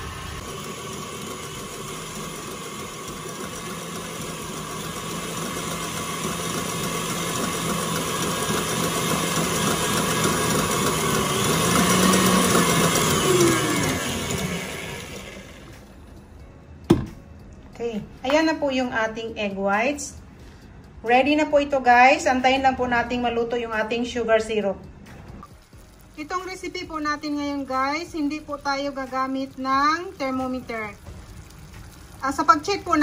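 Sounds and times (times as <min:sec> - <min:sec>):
electric stand mixer whisking: 0:00.0 - 0:15.9.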